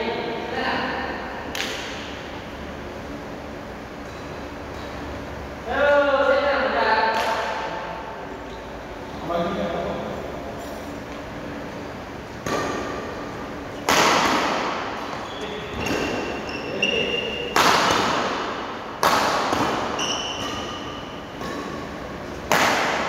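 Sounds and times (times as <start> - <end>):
racket hitting shuttlecock: 1.5 - 2.2, 12.4 - 15.2, 15.8 - 16.4, 17.3 - 23.0
shoes squeaking on wooden floor: 15.0 - 17.5, 19.9 - 21.0.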